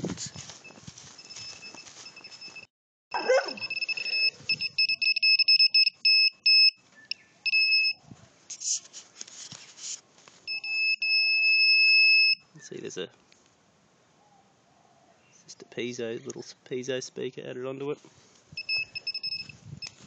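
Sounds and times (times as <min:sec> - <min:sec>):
rustling: 0:00.0 - 0:02.7, 0:08.0 - 0:10.6
buzzer beeping: 0:03.6 - 0:06.8, 0:07.5 - 0:08.0, 0:18.6 - 0:19.6.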